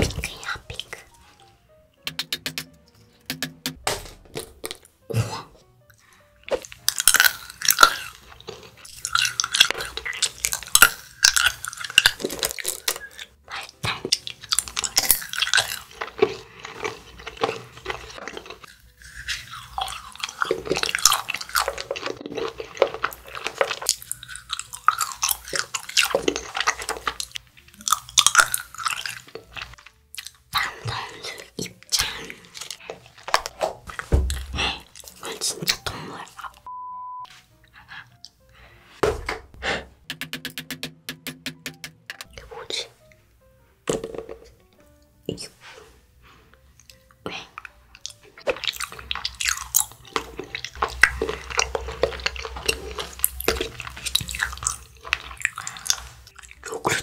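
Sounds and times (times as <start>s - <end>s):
crunching and chewing: 5.9s - 36.7s, 46.8s - 57.0s.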